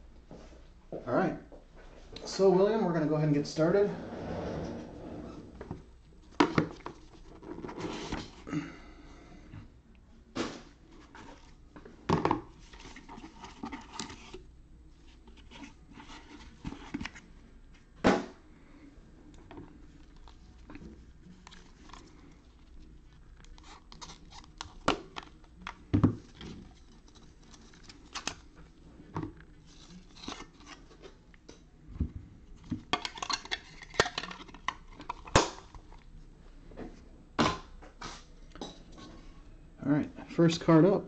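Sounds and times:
wrapper crinkling and tearing: 21.3 - 25.7.

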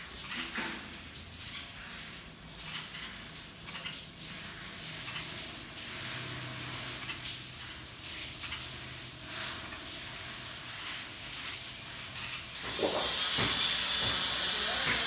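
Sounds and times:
ambient background hiss: 0.0 - 15.0
loud hiss: 12.6 - 15.0.

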